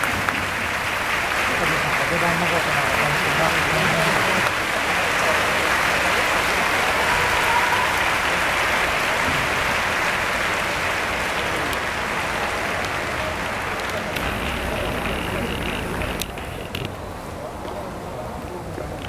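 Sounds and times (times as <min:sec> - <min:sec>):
stadium crowd applauding: 0:00.0 - 0:16.9.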